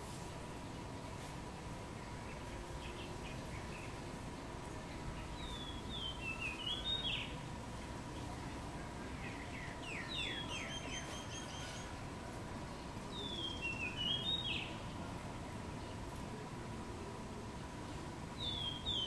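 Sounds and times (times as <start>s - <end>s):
myna whistled call: 10.0s - 11.9s.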